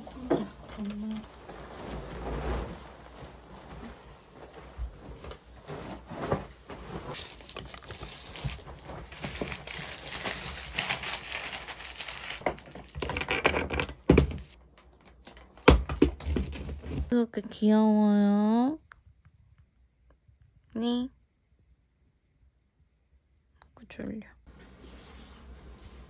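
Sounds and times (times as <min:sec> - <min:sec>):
bedding fabric rustling and flapping: 0:00.7 - 0:09.8.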